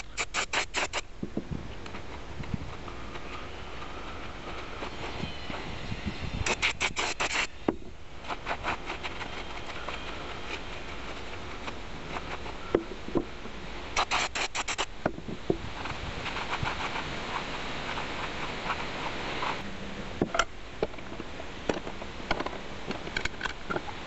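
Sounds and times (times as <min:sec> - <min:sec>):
aerosol spray can spurts: 0:00.1 - 0:01.0.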